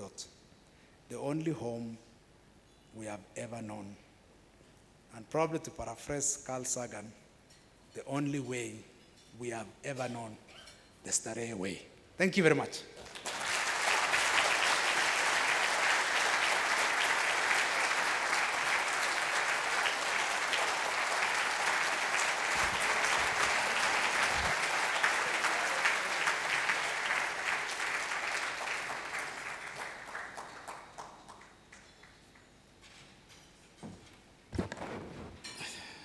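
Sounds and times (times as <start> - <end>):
large audience clapping: 13.0 - 32.5.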